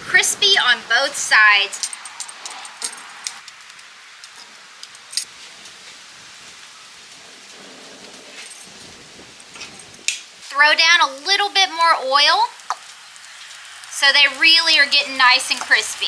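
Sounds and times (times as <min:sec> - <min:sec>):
oil popping and crackling: 0:02.1 - 0:16.0
chicken sizzling in oil: 0:10.3 - 0:16.0.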